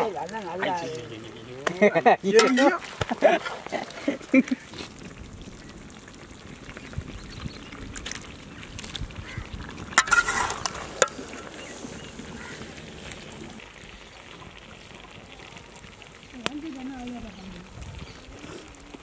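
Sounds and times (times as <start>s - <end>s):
ladle scraping iron pan: 2.3s - 2.8s, 9.9s - 12.6s
metal ladle stirring thick gravy: 9.5s - 13.4s.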